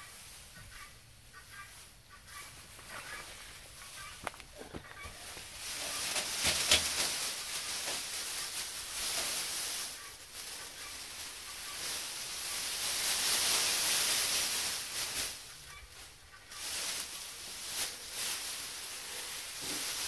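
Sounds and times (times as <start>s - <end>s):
dry hay rustling and crackling: 0.0s - 20.0s
hay stems snapping: 4.0s - 12.1s.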